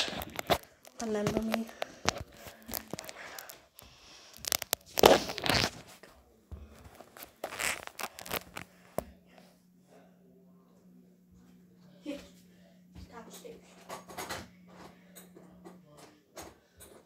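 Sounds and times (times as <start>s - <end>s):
clicks and scraping: 0.0s - 5.8s
microphone rubbing against clothing: 4.3s - 6.0s, 6.8s - 8.7s.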